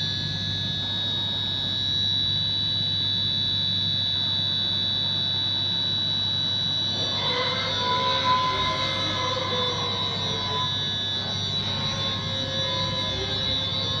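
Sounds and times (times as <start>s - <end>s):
machine high-pitched whine: 0.0s - 14.0s
low machine hum: 4.4s - 14.0s.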